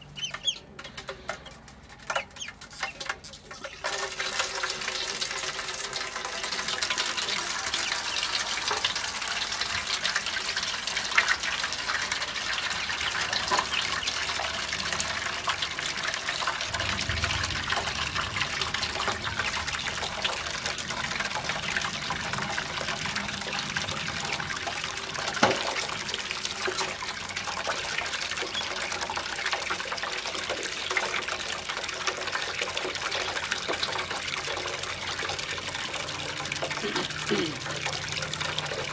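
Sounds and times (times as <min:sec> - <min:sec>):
ducklings splashing: 0:00.0 - 0:16.6
water pouring into metal basin: 0:00.0 - 0:38.9.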